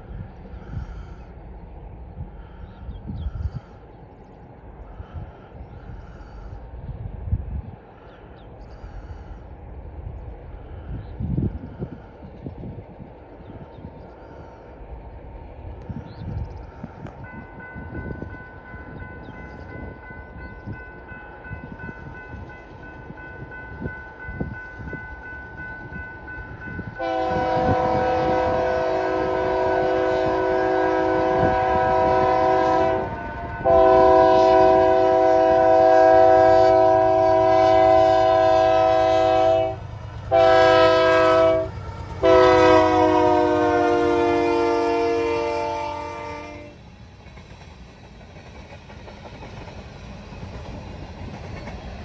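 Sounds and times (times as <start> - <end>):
locomotive air horn blasts: 27.0 - 46.8.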